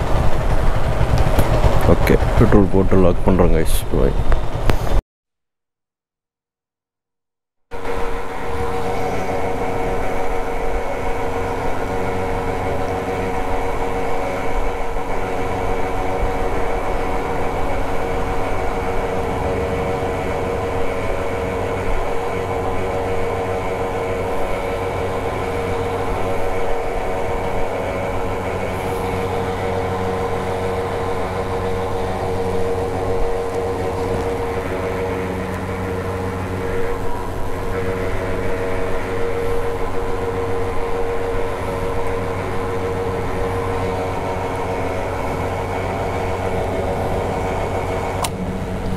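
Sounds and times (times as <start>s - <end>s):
motorcycle engine cruising: 0.0s - 5.0s, 7.8s - 48.9s
road noise: 0.0s - 5.0s, 7.7s - 48.9s
wind noise: 0.0s - 5.0s.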